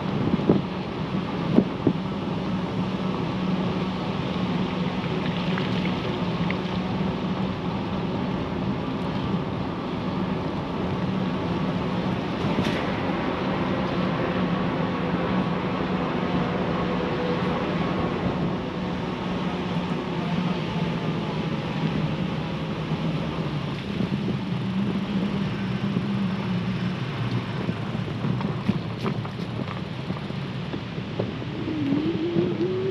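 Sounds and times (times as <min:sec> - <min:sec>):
bike tyre noise: 0:18.9 - 0:32.9
wind on microphone: 0:23.7 - 0:32.9.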